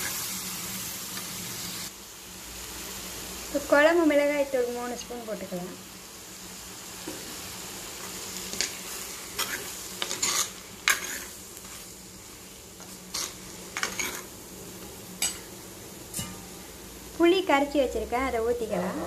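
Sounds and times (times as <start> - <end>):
hot oil sizzling: 0.0 - 19.0
spoon scraping a pan: 8.5 - 11.9, 12.8 - 14.3, 15.2 - 15.5, 16.1 - 16.6.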